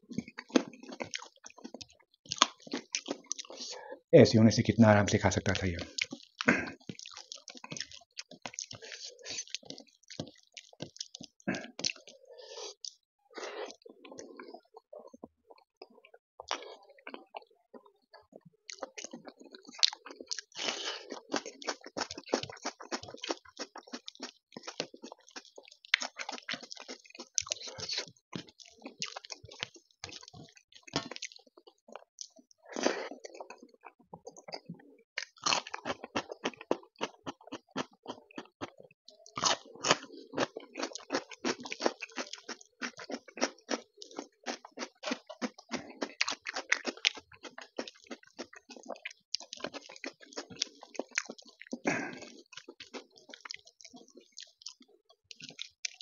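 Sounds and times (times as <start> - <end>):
person chewing: 0.0 - 3.9, 5.2 - 56.0
crunching bites of cucumber: 35.2 - 54.6.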